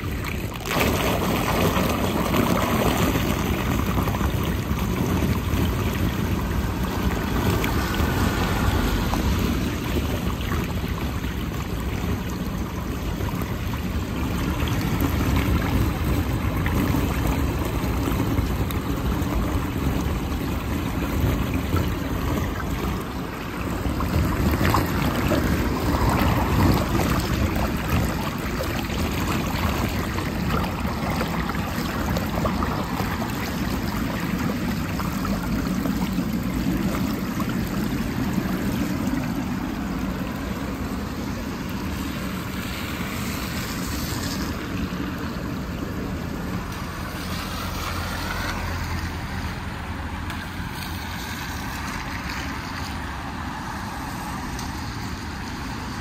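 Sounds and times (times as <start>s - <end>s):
water draining down storm drain: 0.0s - 56.0s.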